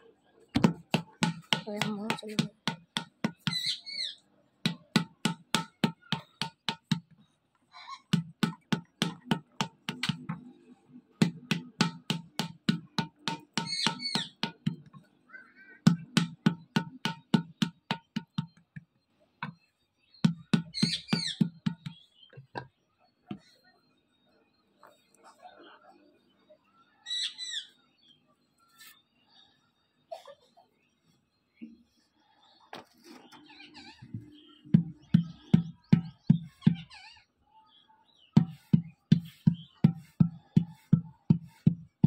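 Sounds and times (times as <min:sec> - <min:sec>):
wooden paddle thudding clay pot: 0:00.6 - 0:03.6, 0:04.6 - 0:07.1, 0:08.1 - 0:10.5, 0:11.2 - 0:15.0, 0:15.9 - 0:18.6, 0:34.2 - 0:36.8, 0:38.4 - 0:42.0
bird chirping: 0:03.4 - 0:05.0, 0:13.2 - 0:30.0, 0:30.8 - 0:40.9.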